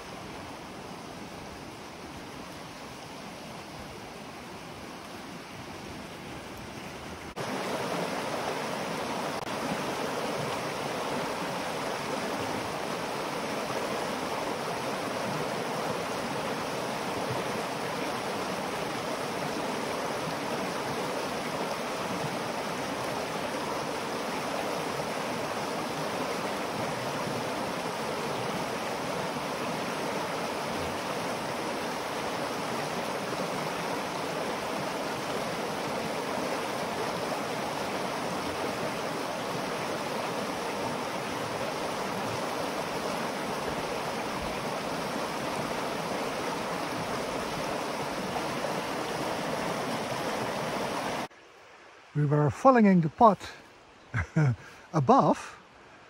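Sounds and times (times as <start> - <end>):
stream rushing over stones: 0.0 - 56.0.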